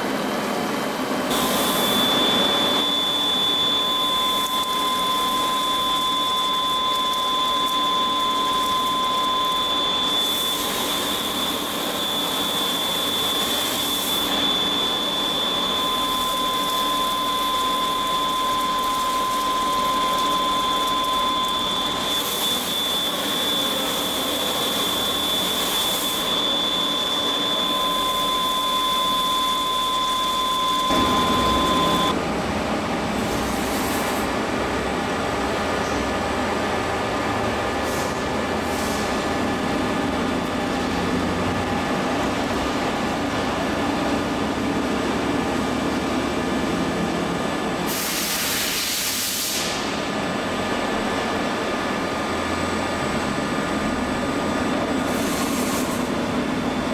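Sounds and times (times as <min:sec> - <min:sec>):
machine hum: 0:00.0 - 0:33.3
spindle high whine: 0:00.0 - 0:33.4
coolant spray noise: 0:47.9 - 0:50.0
loud hiss: 0:47.9 - 0:50.0.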